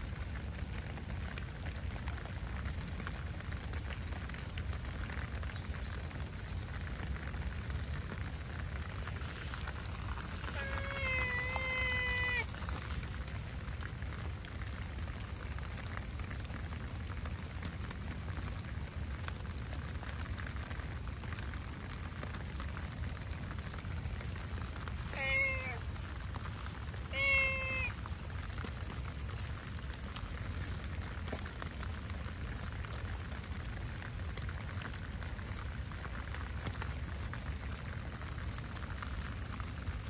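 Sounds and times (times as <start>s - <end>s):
heavy rain hissing: 5.4s - 17.1s, 20.4s - 40.0s
cat meowing: 10.5s - 12.6s, 25.1s - 25.8s, 27.0s - 28.0s.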